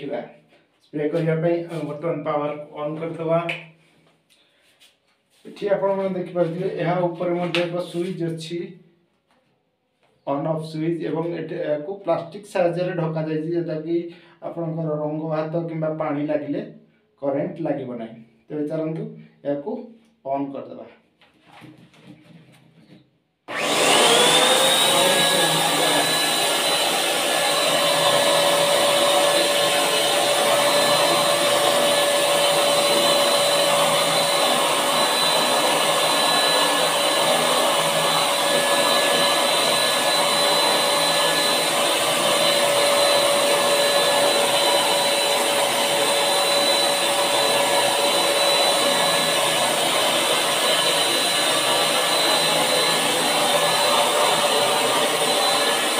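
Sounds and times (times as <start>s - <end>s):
paint sprayer turbine whine: 23.5s - 55.9s.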